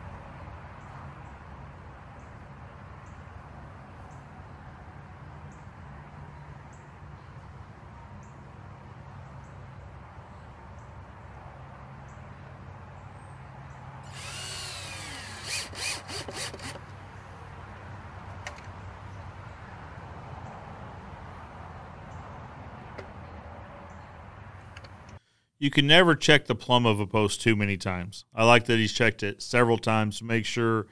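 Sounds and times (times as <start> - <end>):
cordless drill whining: 14.1 - 16.9.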